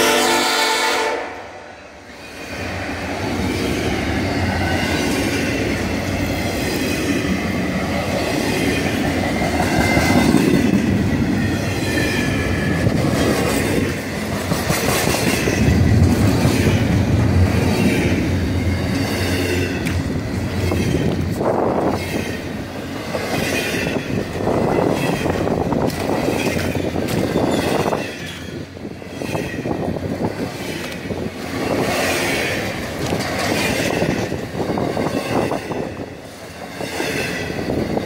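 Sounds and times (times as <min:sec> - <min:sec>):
locomotive horn: 0:00.0 - 0:01.8
freight train rolling past: 0:00.0 - 0:38.0.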